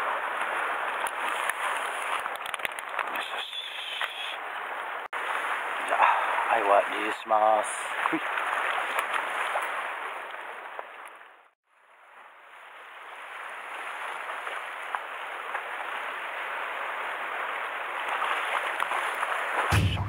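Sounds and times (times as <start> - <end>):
surf washing over rocks: 0.0 - 10.3.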